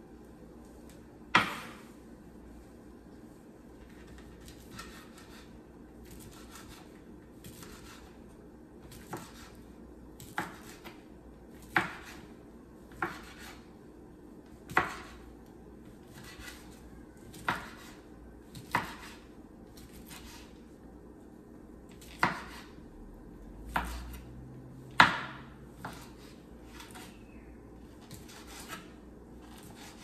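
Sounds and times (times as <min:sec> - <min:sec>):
knife slicing sausage: 0:03.8 - 0:09.6, 0:12.9 - 0:13.7, 0:14.6 - 0:20.6, 0:21.9 - 0:22.8, 0:27.9 - 0:30.0.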